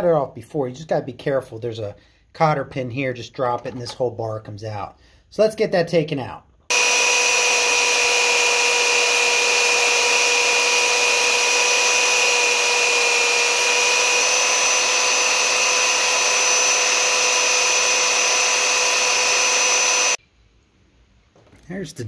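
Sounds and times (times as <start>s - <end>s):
belt sander whining: 6.7s - 20.2s.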